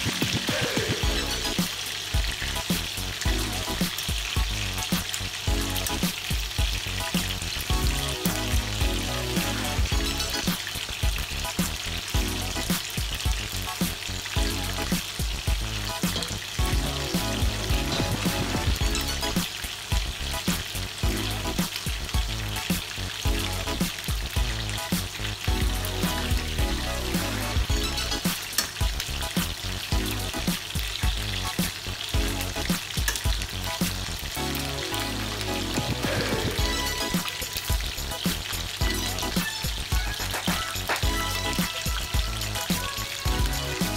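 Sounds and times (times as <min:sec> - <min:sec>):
background music with low beat: 0:00.0 - 0:43.9
chicken sizzling in hot oil: 0:00.0 - 0:43.9
metal tongs clicking on pan: 0:28.1 - 0:28.8.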